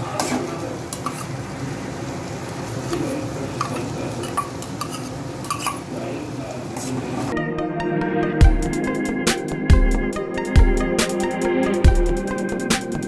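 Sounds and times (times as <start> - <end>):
food sizzling in oil: 0.0 - 7.4
steel spoon scraping bowl: 1.0 - 1.3, 4.2 - 5.8.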